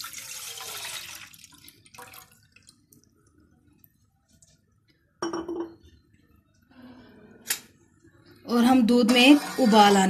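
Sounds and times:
milk pouring into metal saucepan: 0:00.0 - 0:03.4.

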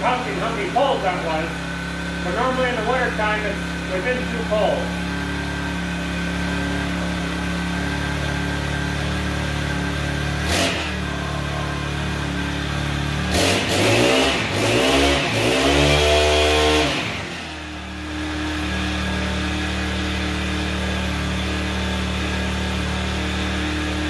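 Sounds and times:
small engine idling and revving: 0:00.0 - 0:24.0.

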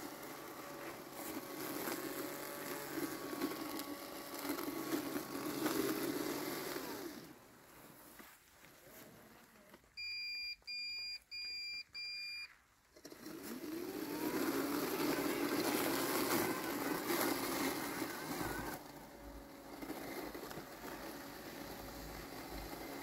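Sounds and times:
mower blade motor whine: 0:00.0 - 0:08.2, 0:13.0 - 0:23.0
short beeps: 0:10.0 - 0:12.5.

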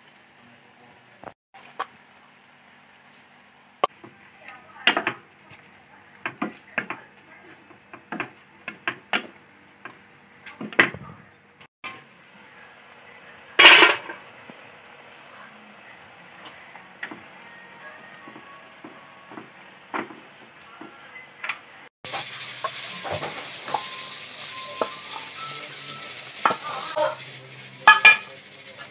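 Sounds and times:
noodles sizzling: 0:11.9 - 0:28.9
spatula scraping frying pan: 0:13.6 - 0:14.2, 0:22.1 - 0:28.9.

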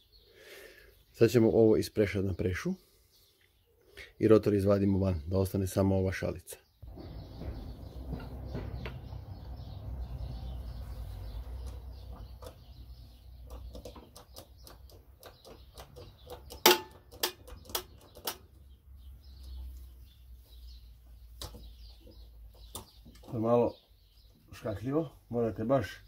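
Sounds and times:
birds chirping faintly: 0:00.0 - 0:26.0
handling noise: 0:06.8 - 0:10.1.

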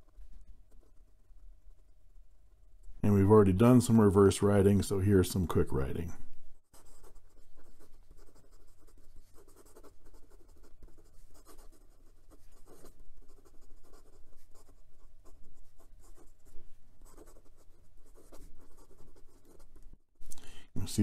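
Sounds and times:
pen scratching on paper: 0:00.1 - 0:02.0, 0:06.7 - 0:20.0.

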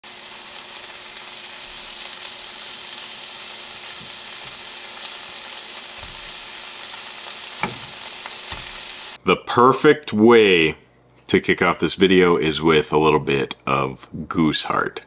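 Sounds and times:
meat sizzling in a frying pan: 0:00.0 - 0:09.2.

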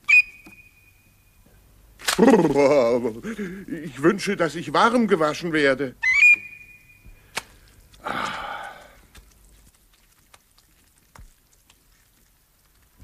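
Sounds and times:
faint water drips: 0:06.3 - 0:13.0
gush of water: 0:07.4 - 0:09.2.

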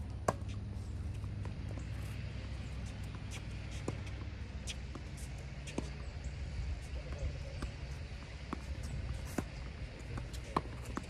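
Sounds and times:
tennis ball hitting rackets: 0:00.0 - 0:06.2, 0:06.8 - 0:11.0
steady low rumble: 0:00.0 - 0:11.0.

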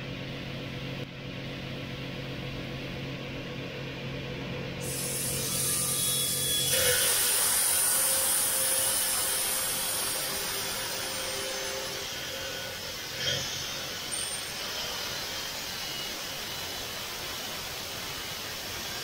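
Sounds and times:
glass grinding on wet wheel: 0:04.8 - 0:15.4.

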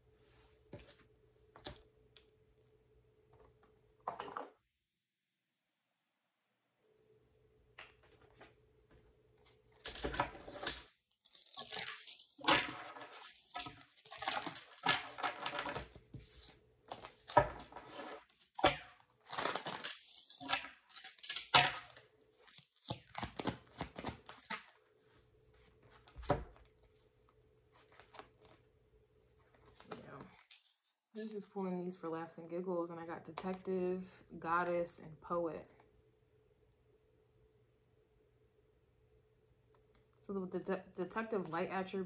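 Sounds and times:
faint steady hum: 0:00.0 - 0:22.8, 0:23.6 - 0:42.0
cards being shuffled: 0:09.4 - 0:18.6, 0:19.2 - 0:24.8, 0:27.7 - 0:28.6.

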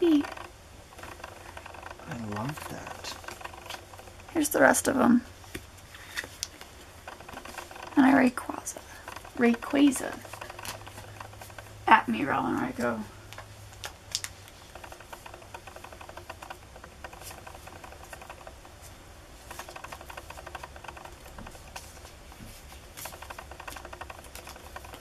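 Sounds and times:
trading cards clicking and rustling: 0:00.0 - 0:25.0
cards snapping: 0:13.3 - 0:14.6, 0:24.3 - 0:25.0.

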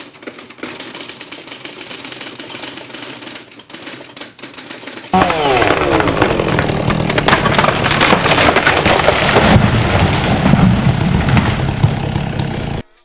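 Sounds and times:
branches cracking and snapping: 0:05.2 - 0:12.8
heavy rumble of falling tree: 0:05.2 - 0:12.8.

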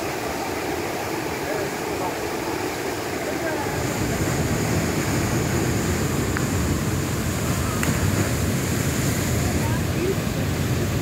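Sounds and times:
waterfall pouring over rocks: 0:00.0 - 0:11.0.

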